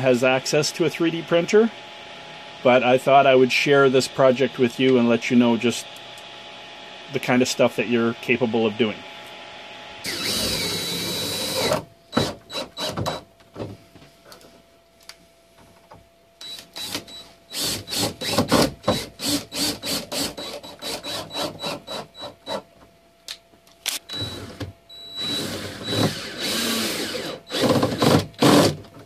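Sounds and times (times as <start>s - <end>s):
cordless drill whirring: 10.0s - 13.2s, 16.4s - 22.6s, 23.9s - 28.8s
drill driving screws into plastic: 10.1s - 13.2s, 16.4s - 22.6s, 23.8s - 28.9s.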